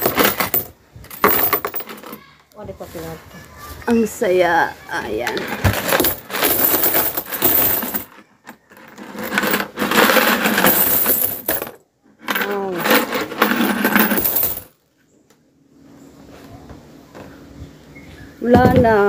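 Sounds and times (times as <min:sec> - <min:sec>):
coins rattling in plastic bank: 0:00.0 - 0:02.2, 0:05.3 - 0:14.7.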